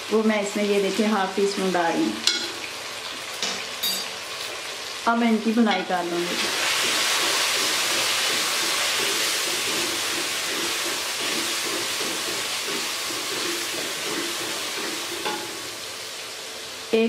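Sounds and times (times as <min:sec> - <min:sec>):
chicken sizzling in oil: 0:00.0 - 0:17.0
wooden spatula stirring in pot: 0:05.8 - 0:15.4.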